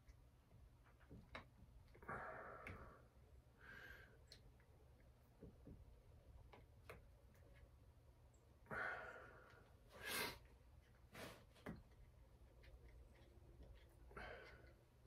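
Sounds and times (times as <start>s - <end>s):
sharp breath or rustle: 11.1s - 11.6s.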